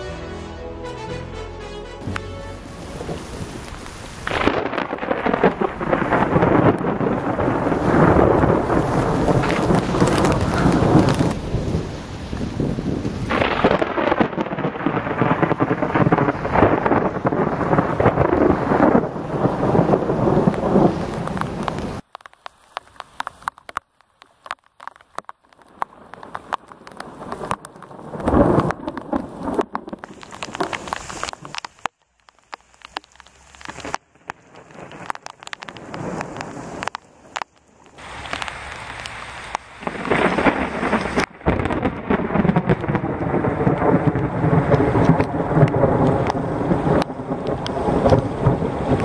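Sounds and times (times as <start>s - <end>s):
thunder rumbling: 2.0s - 22.0s, 25.6s - 31.6s, 32.8s - 49.0s
rain pattering: 2.0s - 49.0s
loud thunder clap: 2.8s - 22.0s, 39.8s - 49.0s.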